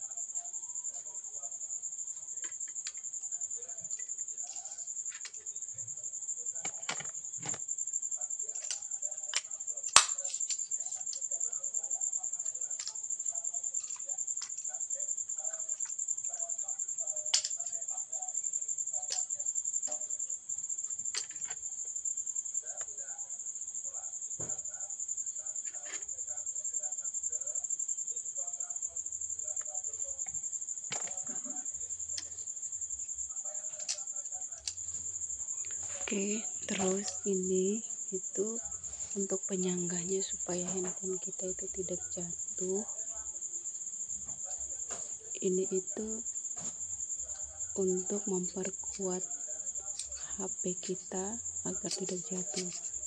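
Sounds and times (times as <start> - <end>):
cricket chirping: 0.0 - 53.0
plastic clicks: 8.6 - 11.2.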